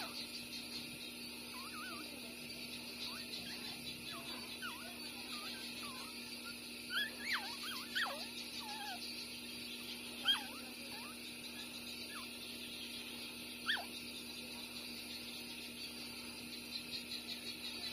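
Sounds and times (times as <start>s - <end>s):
puppies squeaking and whimpering: 1.5s - 2.1s, 3.0s - 9.2s, 10.1s - 12.3s, 13.6s - 14.0s.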